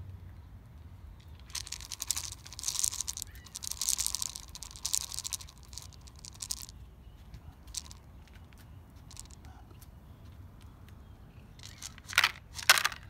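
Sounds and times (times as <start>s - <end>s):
crackling crinkling rustle: 1.2s - 9.9s, 11.6s - 13.0s.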